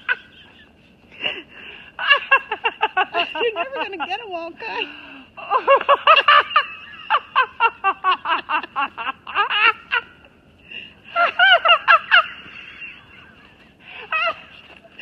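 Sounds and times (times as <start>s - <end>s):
person laughing hard: 5.4s - 10.2s, 11.1s - 15.0s.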